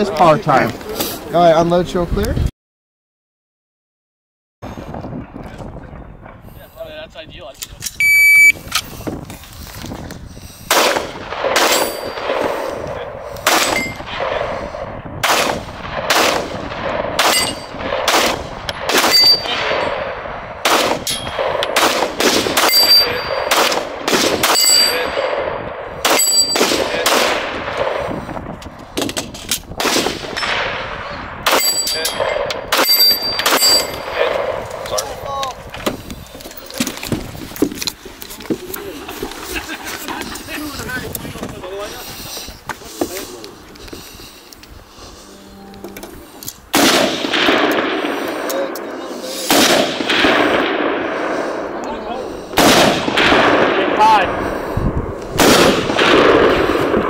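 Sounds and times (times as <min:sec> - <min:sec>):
echoing gunshots: 0:10.7 - 0:28.6, 0:29.7 - 0:34.9, 0:46.7 - 0:57.0
ringing ding of steel targets: 0:13.7 - 0:14.0, 0:17.3 - 0:17.8, 0:19.1 - 0:19.5, 0:22.7 - 0:23.5, 0:24.5 - 0:25.1, 0:26.2 - 0:26.6, 0:31.5 - 0:34.1.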